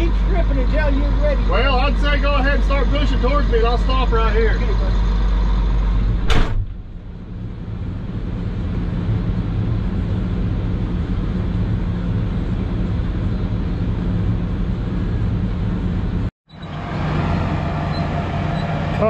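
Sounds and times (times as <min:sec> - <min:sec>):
diesel engine running: 0:00.0 - 0:19.0
cab door slamming shut: 0:06.2 - 0:06.9.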